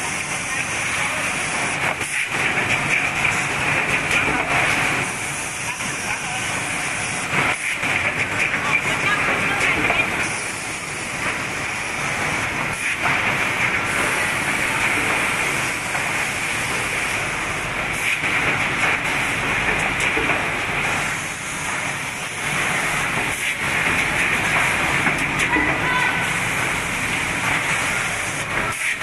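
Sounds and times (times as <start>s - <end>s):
machine whirring hiss: 0.0s - 29.0s.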